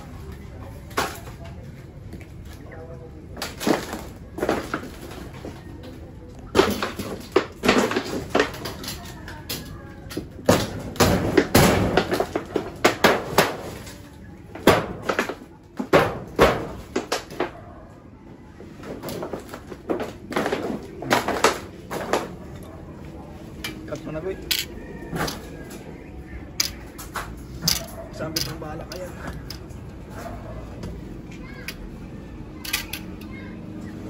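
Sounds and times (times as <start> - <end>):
corrugated metal banging: 6.5 - 17.8.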